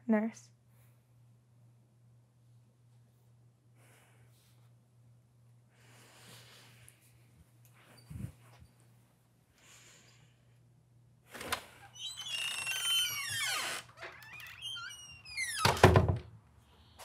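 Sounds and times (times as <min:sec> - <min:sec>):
door hinges squeaking: 0:11.9 - 0:16.2
door closing thud: 0:15.5 - 0:16.3.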